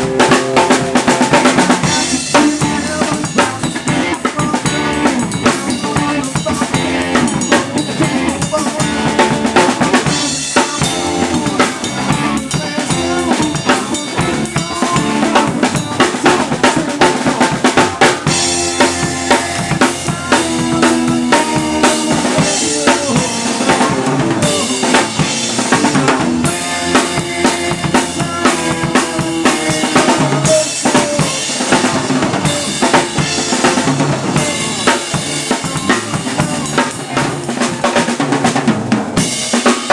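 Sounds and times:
drums and cymbals: 0.0s - 39.9s
electric guitar and bass: 0.0s - 39.9s
rock band playing: 0.0s - 39.9s.

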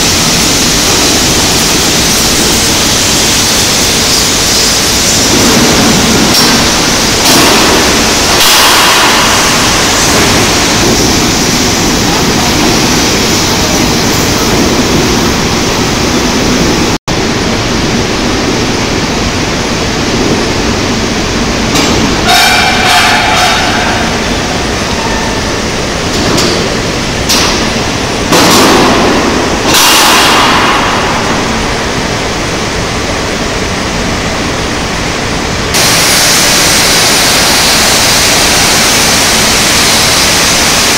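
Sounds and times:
industrial roller table noise: 0.0s - 40.9s
metal squeal: 22.2s - 24.4s.

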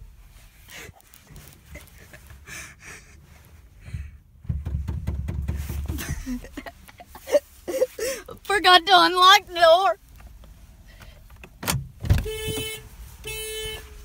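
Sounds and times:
microphone rustles and clicks: 0.1s - 8.0s.

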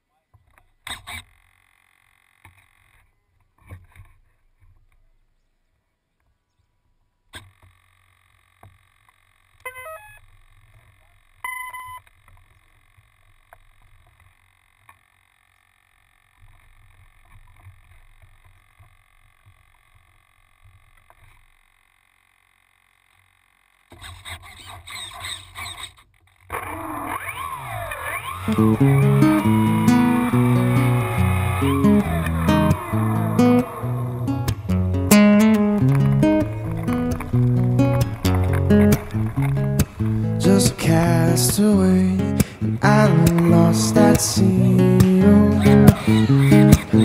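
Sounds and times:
loud noise: 27.3s - 41.6s.

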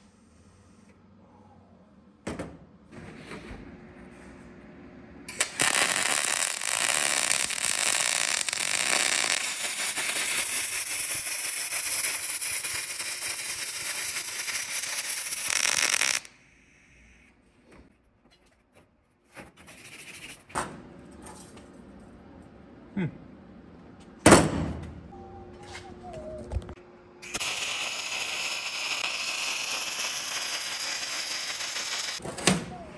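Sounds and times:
welding arc crackling: 5.3s - 16.4s, 27.2s - 32.2s.

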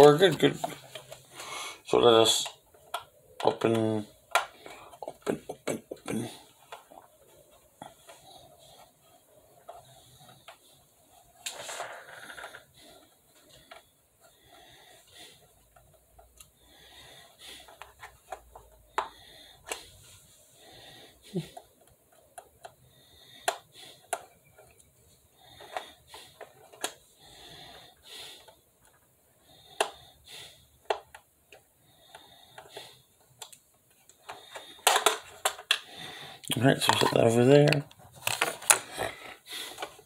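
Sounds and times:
soft breathing: 0.5s - 2.0s, 6.2s - 36.6s
screwdriver clicking and scraping on plastic: 2.4s - 5.3s, 17.6s - 19.8s, 23.4s - 27.1s, 30.8s - 35.9s, 36.6s - 38.9s.

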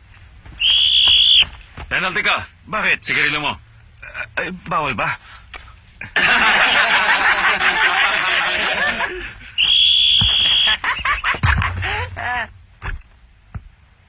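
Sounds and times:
referee's whistle blast: 0.6s - 1.5s, 9.6s - 11.2s
crowd laughing and jeering: 6.2s - 9.6s, 10.3s - 12.5s.

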